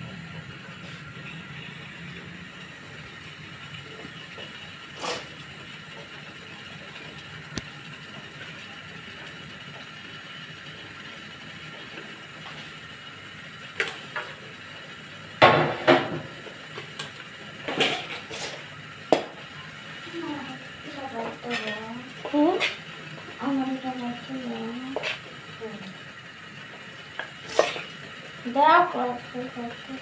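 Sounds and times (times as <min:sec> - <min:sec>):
metal bowls and utensils clattering: 0:17.7 - 0:18.6, 0:21.4 - 0:22.8, 0:27.5 - 0:27.9.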